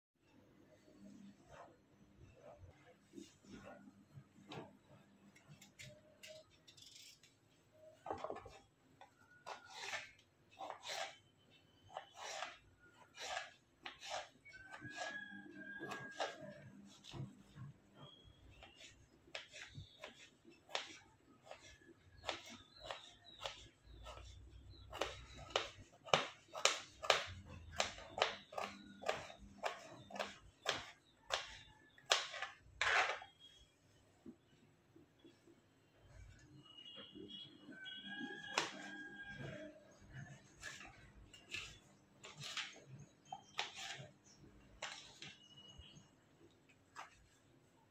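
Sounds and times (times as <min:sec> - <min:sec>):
knife scraping on plastic board: 0:08.1 - 0:33.6, 0:38.1 - 0:45.7.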